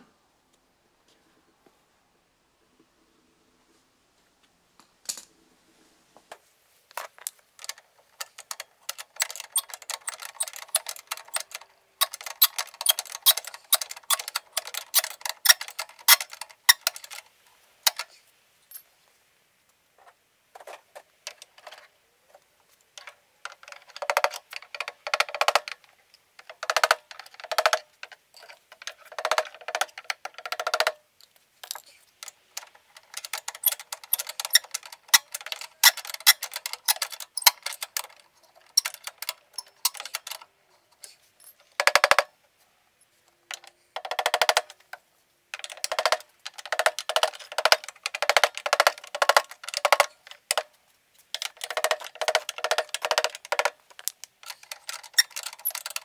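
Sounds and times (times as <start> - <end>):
ratchet wrench clicking: 7.6 - 17.2, 33.0 - 38.1.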